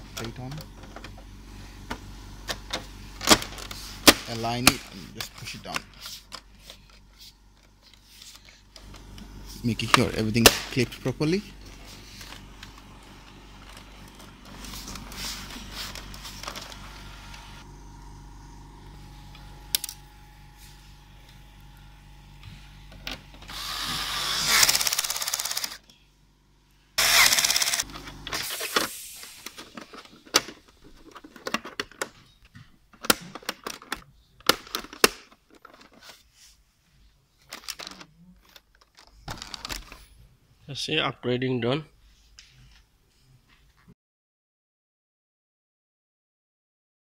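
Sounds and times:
cordless screwdriver whirring: 23.5 - 25.8, 27.0 - 27.9.

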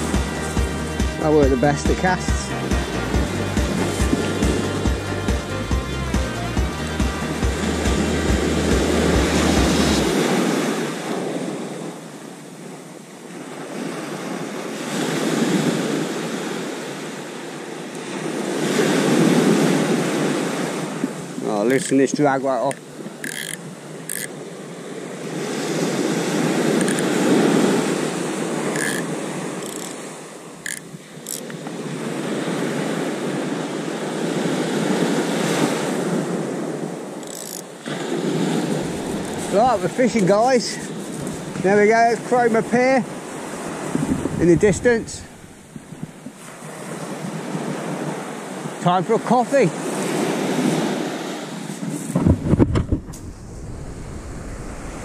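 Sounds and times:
small waves breaking on beach: 7.3 - 55.0
wind on microphone: 7.4 - 12.0, 18.2 - 48.6, 49.8 - 55.0.

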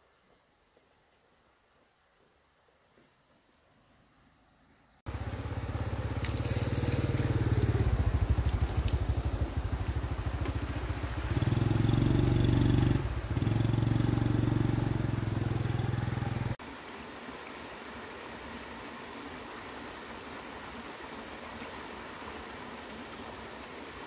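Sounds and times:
small motorcycle engine running: 5.1 - 16.6.

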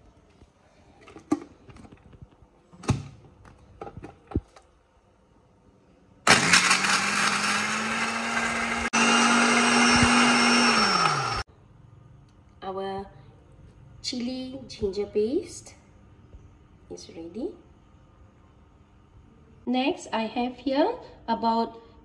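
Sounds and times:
electric blender grinding: 6.3 - 11.5.

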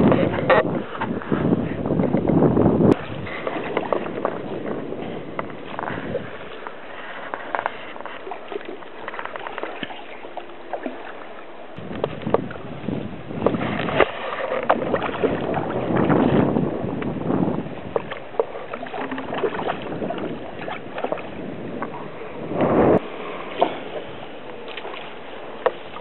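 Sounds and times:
landing net moving through water: 0.0 - 26.0
fish splashing in water: 13.4 - 16.6, 17.8 - 22.2.

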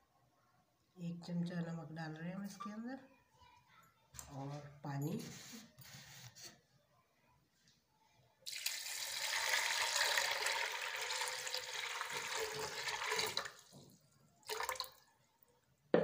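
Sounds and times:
water pouring into a pot: 8.4 - 13.8, 14.4 - 15.1.

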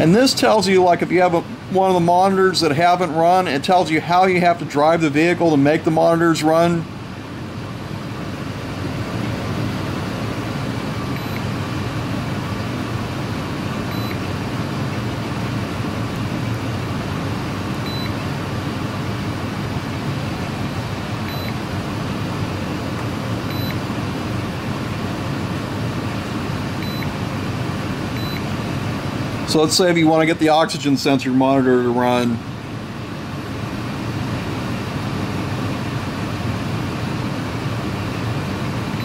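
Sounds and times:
steady mechanical noise: 0.0 - 39.0
short high-pitched beeps: 11.2 - 11.5, 13.9 - 14.2, 17.8 - 18.2, 20.7 - 21.6, 23.5 - 23.8, 26.8 - 27.1, 28.2 - 28.4.

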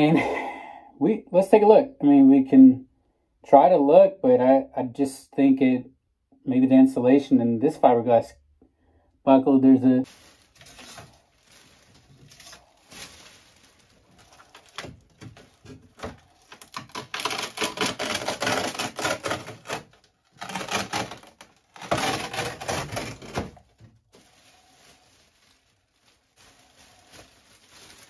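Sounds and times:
foam insulation crackling and crunching: 10.0 - 28.0.

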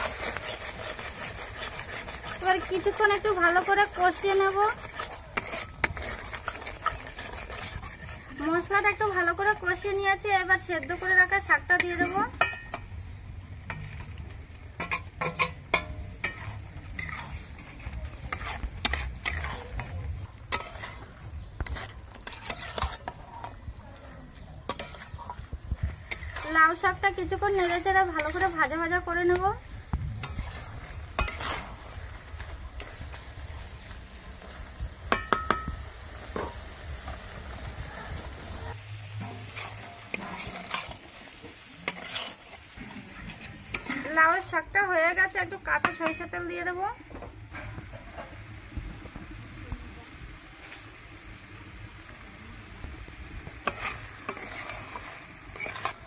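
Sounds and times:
spatula scraping steel pan: 0.0 - 12.8, 13.7 - 23.8, 24.4 - 29.6, 30.2 - 32.2, 39.1 - 44.7, 53.6 - 56.0
light sizzle: 0.0 - 56.0
spatula clinking on pan: 11.8 - 12.8, 14.8 - 17.2, 31.2 - 31.5, 35.1 - 35.8.

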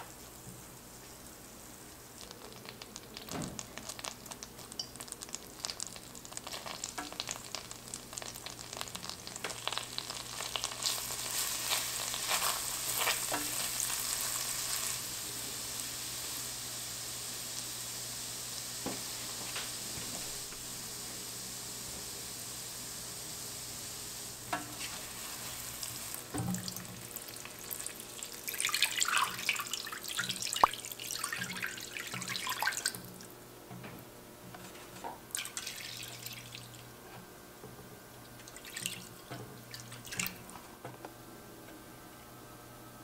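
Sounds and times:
garlic frying and sizzling: 0.2 - 33.8
butter crackling in a pan: 2.0 - 20.7, 23.8 - 33.3.

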